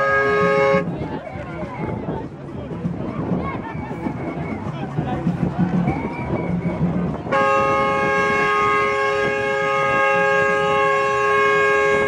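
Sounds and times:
truck horn chord: 0.0 - 0.9, 7.3 - 12.0
crowd noise: 0.0 - 12.0.

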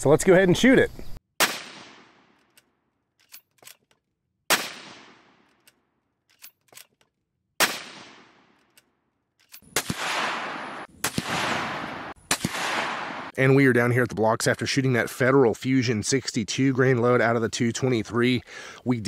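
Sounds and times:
rifle shots echoing: 1.4 - 2.4, 4.5 - 5.6, 7.6 - 8.6, 9.6 - 13.4
sharp cracks: 1.4 - 7.0, 7.6 - 13.4
rifle bolt clicks: 2.4 - 4.1, 5.2 - 7.2, 8.5 - 9.7.

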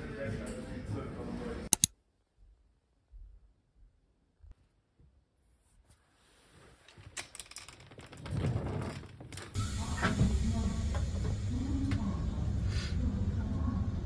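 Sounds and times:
train carriage rumble: 8.0 - 14.0.

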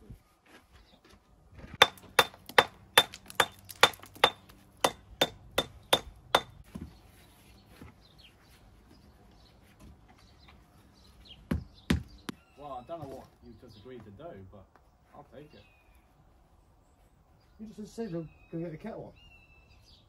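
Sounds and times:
hammer blows with metallic ring: 1.8 - 6.6.

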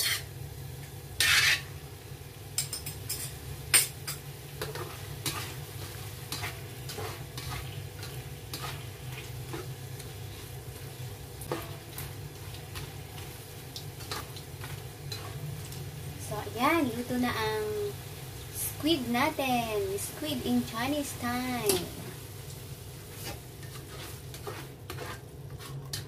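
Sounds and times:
spatula scraping a pan: 0.0 - 0.3, 1.2 - 1.7, 2.6 - 13.4, 14.0 - 15.5, 23.1 - 26.0
food sizzling in a wok: 0.0 - 26.0.

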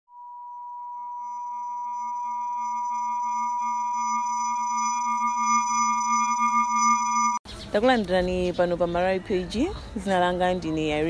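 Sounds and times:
synthesized electronic chord: 0.8 - 7.4.

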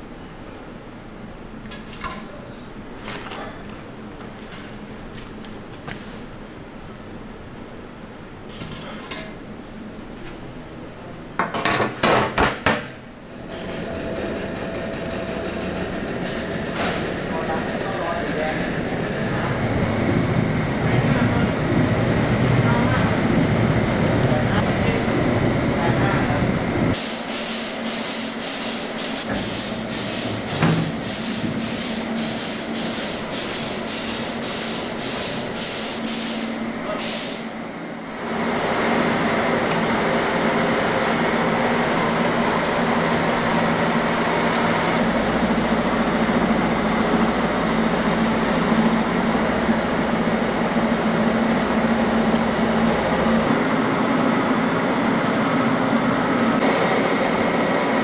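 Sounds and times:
machine running with low hum: 13.1 - 27.3, 37.6 - 58.0
rhythmic hissing puffs: 26.7 - 37.6.

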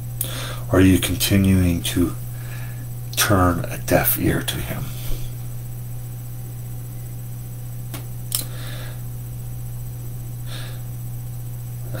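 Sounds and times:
low room hum: 0.0 - 12.0
faint breath: 0.2 - 0.7, 2.3 - 2.9, 8.4 - 9.1, 10.4 - 10.9.

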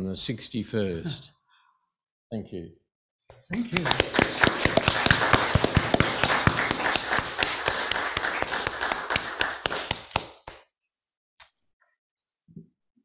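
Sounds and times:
congregation applauding: 3.5 - 10.6.

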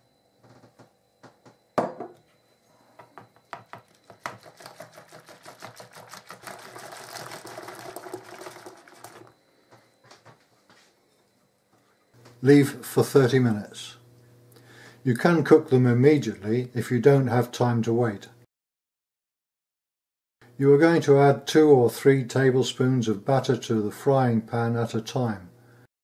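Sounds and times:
whisk clattering in bowl: 3.6 - 9.3.

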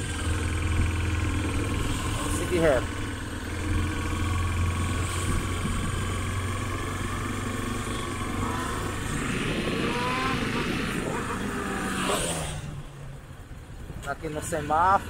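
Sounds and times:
vehicle engine and road noise: 0.0 - 15.0
rising whine: 3.6 - 12.7.

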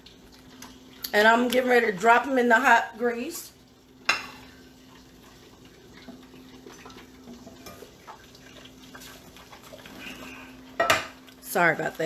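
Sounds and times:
stovetop simmering: 0.0 - 12.0
cookware clinking: 4.1 - 4.4, 10.8 - 11.2.

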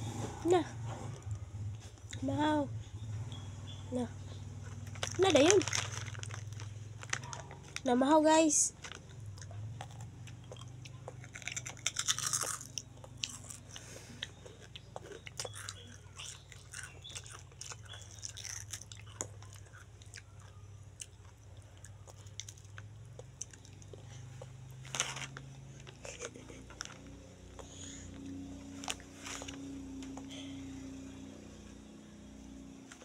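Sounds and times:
toddler chewing crunchy snack: 4.6 - 7.9, 8.8 - 30.5.

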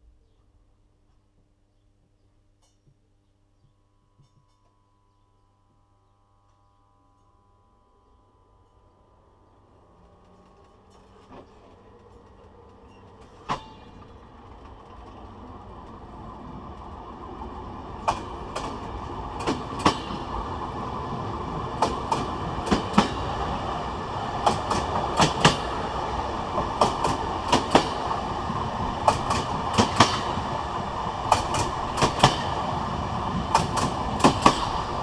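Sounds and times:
train wheels rumbling: 9.7 - 35.0
clickety-clack over rail joints: 10.0 - 35.0.

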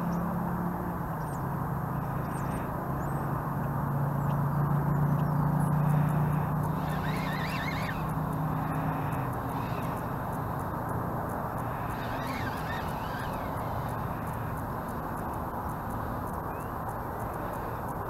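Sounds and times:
low hum: 0.0 - 18.0
outdoor noise: 0.0 - 18.0
wavering animal call: 6.7 - 10.1, 11.6 - 14.4.

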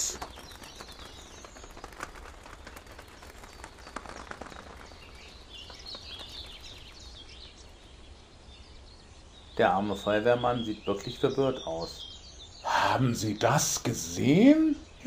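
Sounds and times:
faint scattered clicks: 0.0 - 7.9
small birds chirping: 0.0 - 15.0.

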